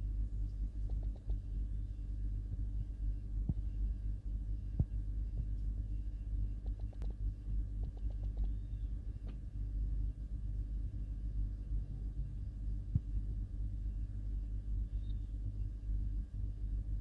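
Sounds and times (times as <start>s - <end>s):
throbbing low hum: 0.0s - 17.0s
faint sharp clicks: 7.8s - 8.6s.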